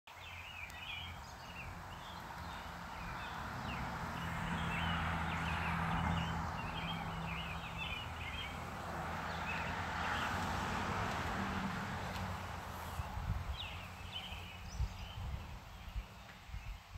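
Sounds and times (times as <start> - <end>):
small birds chirping: 0.1 - 10.5, 12.7 - 16.9.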